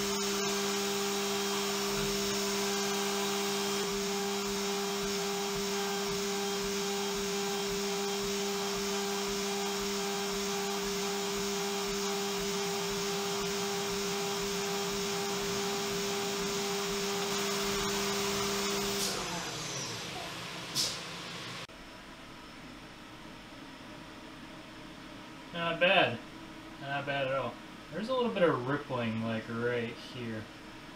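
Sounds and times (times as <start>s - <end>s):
milling spindle whining: 0.0s - 20.5s
air blast hissing: 20.7s - 21.1s.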